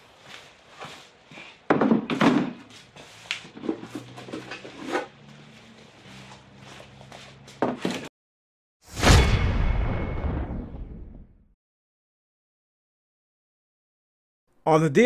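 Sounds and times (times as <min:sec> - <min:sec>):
plastic ramps being handled: 0:01.7 - 0:05.1.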